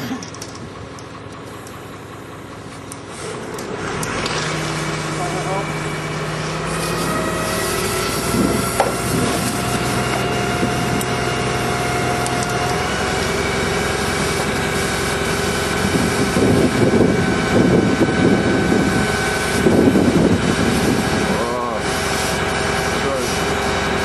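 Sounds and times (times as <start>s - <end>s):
fire engine pump running: 0.0s - 24.0s
water fog spraying hiss: 6.2s - 16.4s, 19.3s - 23.9s.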